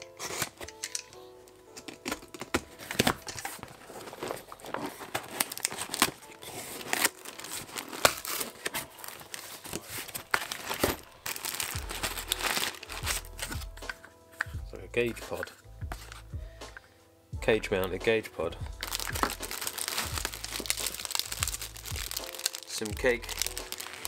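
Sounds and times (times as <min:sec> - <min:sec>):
cardboard and tape ripping: 0:00.0 - 0:00.7, 0:01.8 - 0:13.9, 0:18.8 - 0:24.0
paper crinkling: 0:00.0 - 0:14.6, 0:18.8 - 0:24.0.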